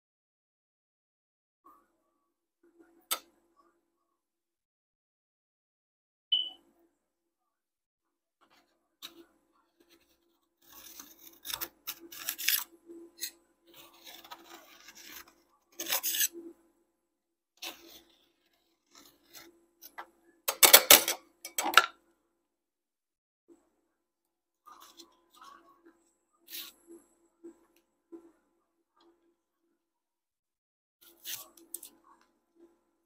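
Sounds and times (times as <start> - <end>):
metal spatulas scraping a cold plate: 10.6 - 16.4.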